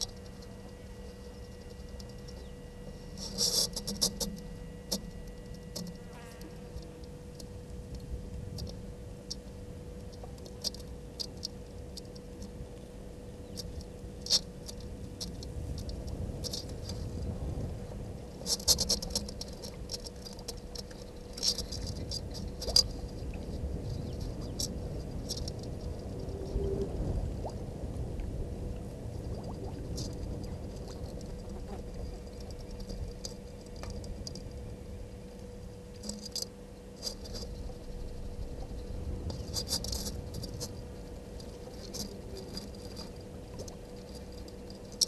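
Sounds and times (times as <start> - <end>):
faint constant hum: 0.0 - 45.0
sharp ticks and clicks: 3.2 - 6.0, 13.5 - 17.1, 36.0 - 38.2
low rumble: 19.4 - 35.9, 37.4 - 44.0.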